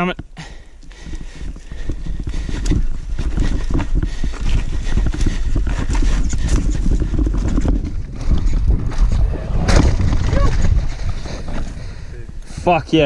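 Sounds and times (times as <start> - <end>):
tyres rumbling over dirt: 5.4 - 12.8.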